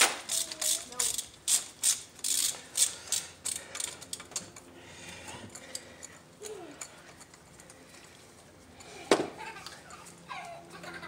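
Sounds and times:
ratchet clicking: 0.0s - 4.6s.

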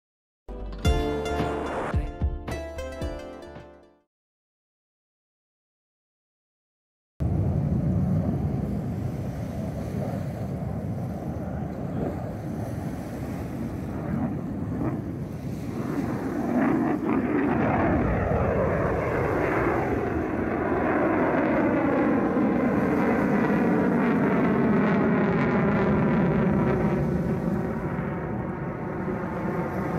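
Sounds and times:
fighter jet flying past: 7.2s - 29.9s
wind on microphone: 7.2s - 29.9s.

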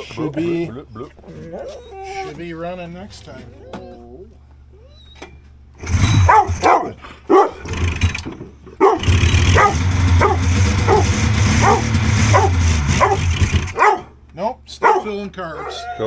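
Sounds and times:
recoil starter being pulled: 5.8s - 6.7s, 7.6s - 13.8s
dog barking excitedly: 5.9s - 7.9s, 8.8s - 14.2s, 14.8s - 16.0s.

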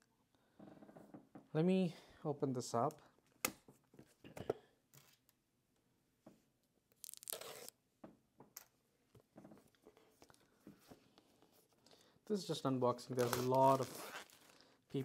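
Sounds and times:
cardboard tearing: 7.0s - 7.7s, 13.2s - 14.5s.

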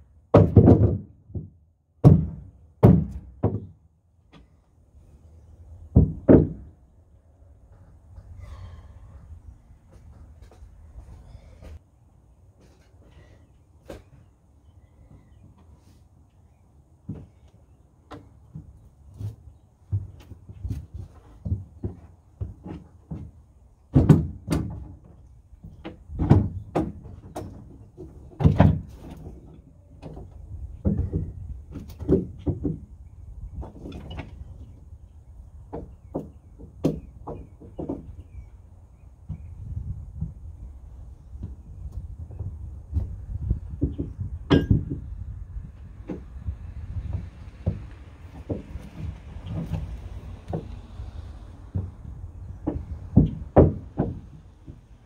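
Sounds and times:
wooden boards knocking and clunking: 0.3s - 4.5s, 5.9s - 6.8s, 17.0s - 34.9s, 35.5s - 38.5s, 41.3s - 55.0s
wood knocking against wood: 47.1s - 50.9s, 51.7s - 54.9s.

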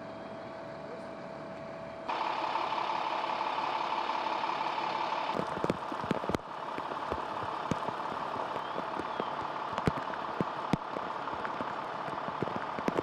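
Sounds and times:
fire engine idling: 0.0s - 13.0s
sharp taps and crackles: 5.3s - 13.0s.

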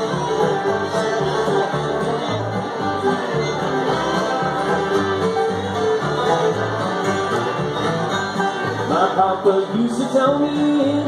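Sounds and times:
acoustic guitar: 0.0s - 11.0s
banjo: 0.0s - 11.0s
fiddle: 0.0s - 11.0s
upright bass: 0.0s - 11.0s.

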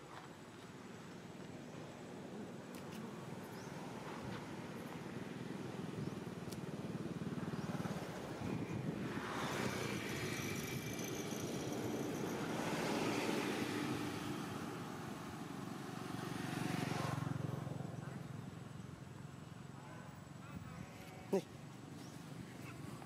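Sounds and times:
vehicle passing by: 3.4s - 18.8s.

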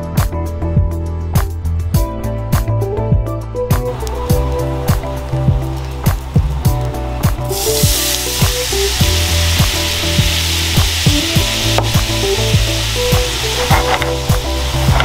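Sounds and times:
background music with beat: 0.0s - 15.0s
water sizzling in hot pan: 4.0s - 15.0s.

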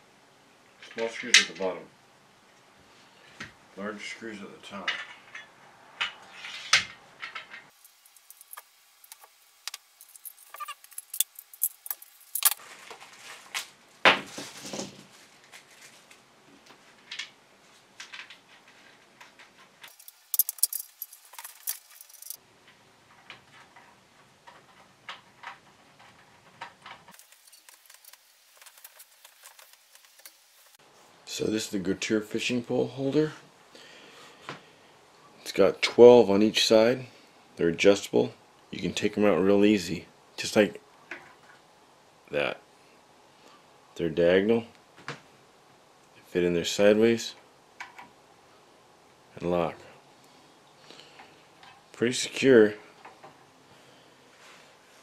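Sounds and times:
screws and parts clicking: 6.4s - 12.6s, 19.8s - 22.4s, 24.5s - 30.4s.

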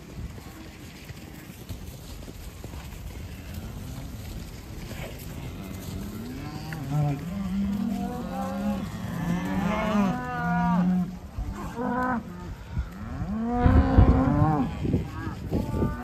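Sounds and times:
cattle mooing: 3.3s - 16.0s.

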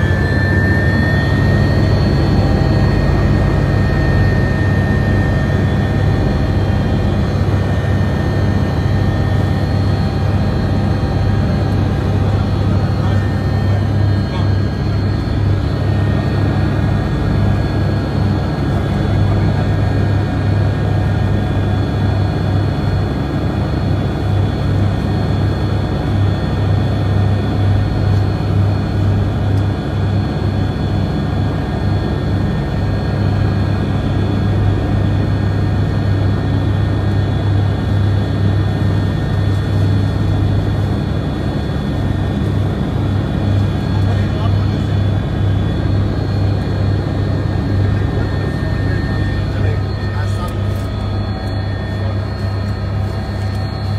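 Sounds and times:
aircraft cabin engine drone: 0.0s - 53.9s.

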